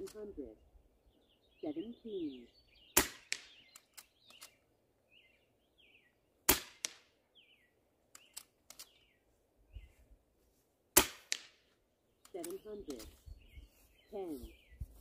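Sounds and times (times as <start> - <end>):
bird chirps: 0.1 - 6.3, 7.2 - 10.0, 12.0 - 15.0
air rifle shots: 3.0 - 4.6, 6.4 - 7.1, 11.0 - 11.6.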